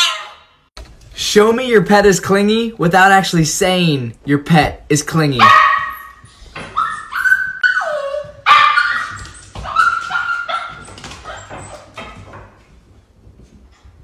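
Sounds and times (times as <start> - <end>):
puppy whining and yelping: 5.8 - 12.1.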